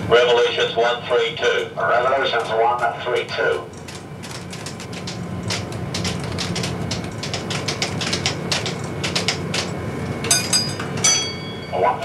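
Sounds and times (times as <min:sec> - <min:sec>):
steady low hum: 0:00.0 - 0:12.0
typewriter keys clacking: 0:03.7 - 0:11.1
high ringing tone: 0:10.3 - 0:12.0.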